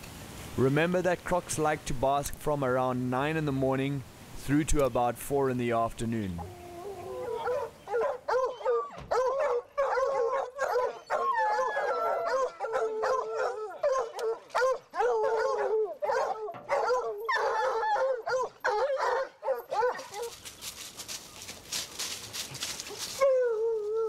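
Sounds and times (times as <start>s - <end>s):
hounds barking and baying: 6.4s - 20.4s, 22.8s - 24.0s.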